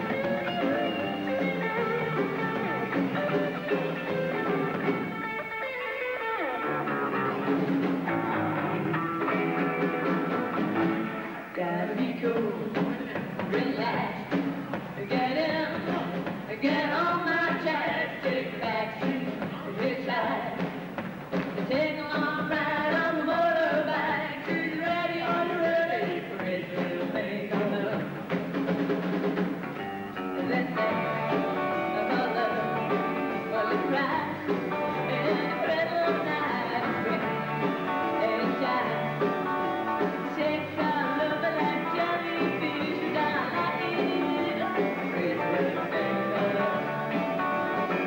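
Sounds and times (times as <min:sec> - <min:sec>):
bass guitar: 0:00.0 - 0:48.0
drum kit: 0:00.0 - 0:48.0
electric guitars: 0:00.0 - 0:48.0
woman singing: 0:11.5 - 0:20.8, 0:21.6 - 0:28.2, 0:30.2 - 0:48.0.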